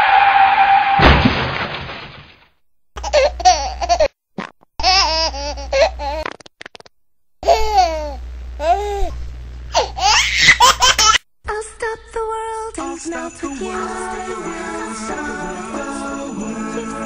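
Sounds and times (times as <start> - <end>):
crash: 0.0 - 2.5
baby giggling: 3.0 - 4.1, 4.8 - 6.2, 7.4 - 9.1, 9.7 - 11.2.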